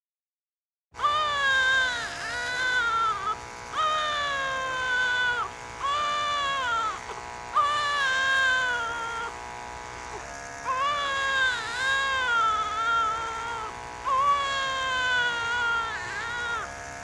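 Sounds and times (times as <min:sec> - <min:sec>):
newborn baby crying: 0:01.0 - 0:09.4, 0:10.1 - 0:16.8
steady electric buzz: 0:01.0 - 0:17.0.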